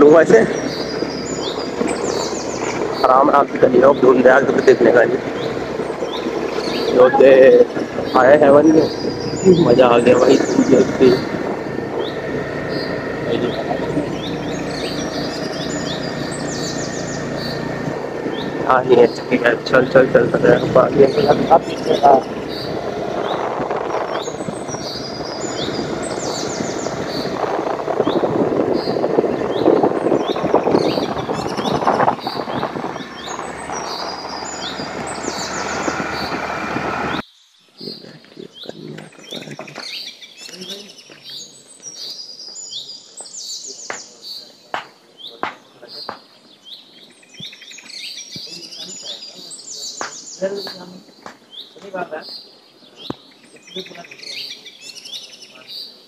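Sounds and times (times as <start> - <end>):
birds chirping: 0.0 - 56.0
vehicle road noise: 0.0 - 56.0
wind on microphone: 20.1 - 37.2.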